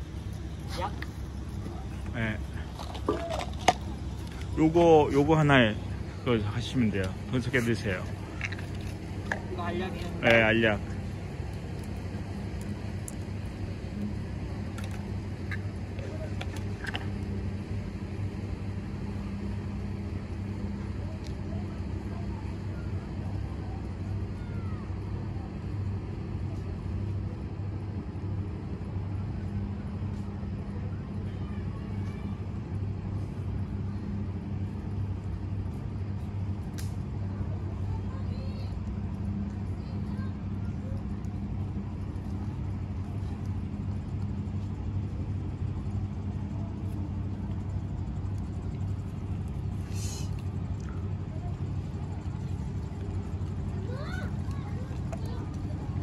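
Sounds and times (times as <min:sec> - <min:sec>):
distant motor engine drone: 0:00.0 - 0:56.0
faint outdoor background noise: 0:00.0 - 0:56.0
brief hiss: 0:49.9 - 0:50.4.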